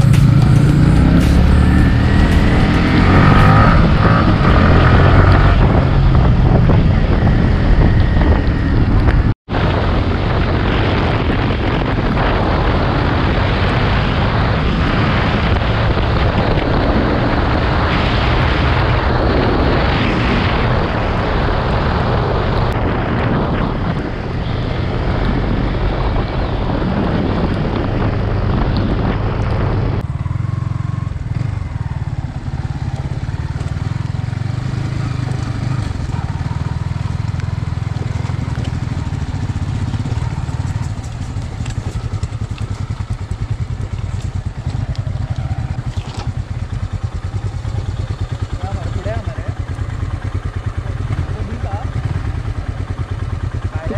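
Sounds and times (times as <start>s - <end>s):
motorcycle engine running: 0.0s - 53.9s
wind noise on microphone: 0.0s - 53.9s.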